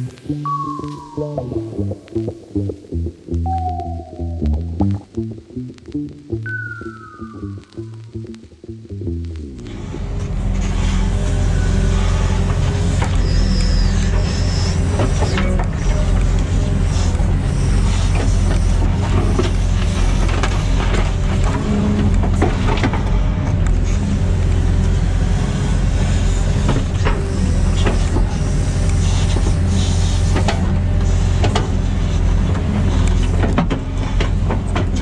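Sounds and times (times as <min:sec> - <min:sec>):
excavator diesel engine running: 0:09.7 - 0:35.0.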